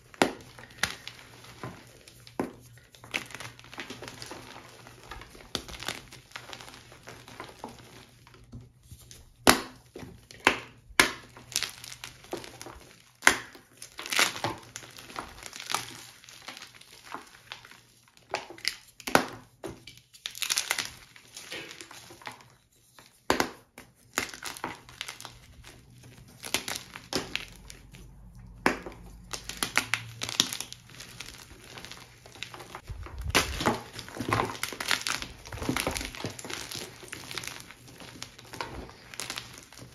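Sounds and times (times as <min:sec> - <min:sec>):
chalk crumbling by hand: 0:11.2 - 0:39.9
chalk pieces snapping: 0:23.2 - 0:39.9.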